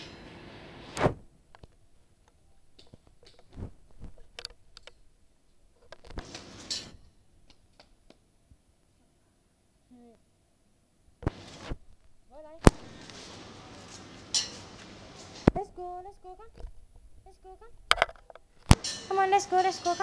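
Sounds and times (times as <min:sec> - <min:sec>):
steady background hiss: 0:00.0 - 0:20.0
loud sharp thump: 0:01.0 - 0:01.3.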